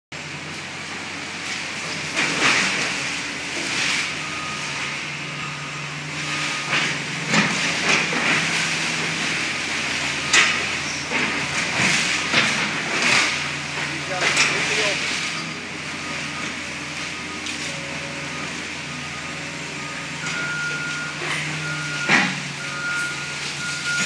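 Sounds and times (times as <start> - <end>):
excavator engine running: 0.2 - 24.0
debris crashing and rattling: 1.5 - 4.2, 6.5 - 15.8.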